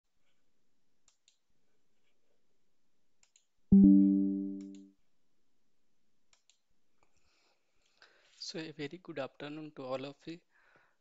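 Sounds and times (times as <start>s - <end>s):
faint mouse clicks: 1.0s - 1.4s, 3.2s - 3.5s
computer notification chime: 3.7s - 4.8s.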